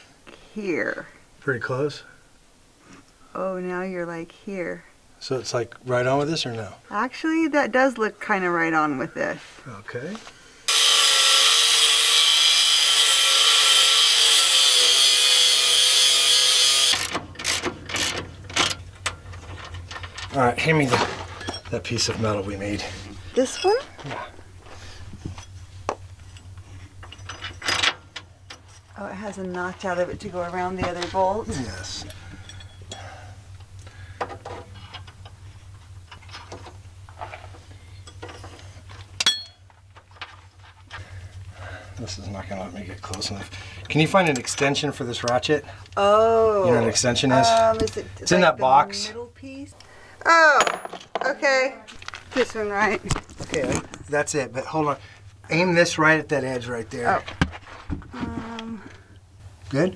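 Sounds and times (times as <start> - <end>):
angle grinder cutting metal: 10.7 - 17.1
metal plate clinks and scrapes: 23.4 - 24.2, 26.2 - 27.9, 32.3 - 33.2
sharp ringing metal clink: 32.4 - 33.2, 39.2 - 39.6.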